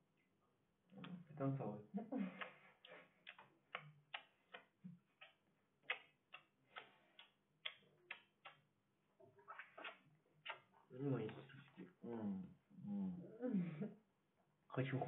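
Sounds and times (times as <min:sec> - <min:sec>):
wet kissing smacks: 0:02.3 - 0:08.6, 0:09.4 - 0:11.7.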